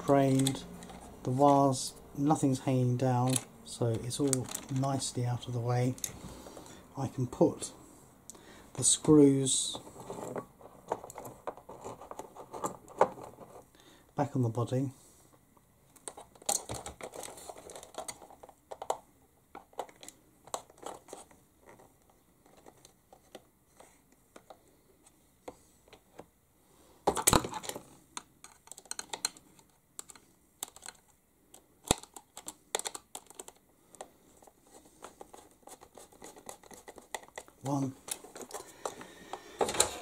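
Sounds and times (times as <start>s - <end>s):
plastic clicks and rattles: 0.2s - 1.1s, 3.2s - 5.0s, 15.9s - 24.6s, 27.1s - 34.1s, 35.0s - 40.0s.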